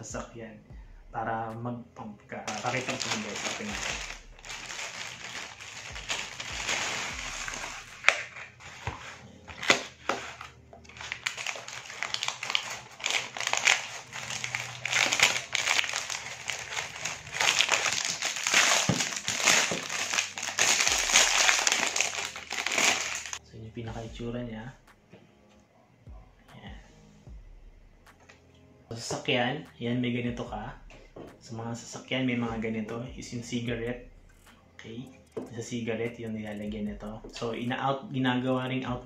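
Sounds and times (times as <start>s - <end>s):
plastic and cardboard crinkling: 2.5s - 23.4s
sharp plastic cracks: 11.0s - 23.4s.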